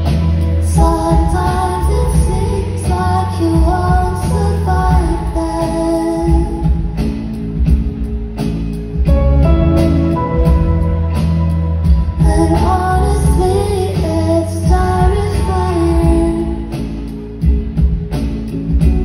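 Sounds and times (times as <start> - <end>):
woman singing: 0.0 - 7.4, 11.9 - 17.5
live pop band playing: 0.0 - 19.0.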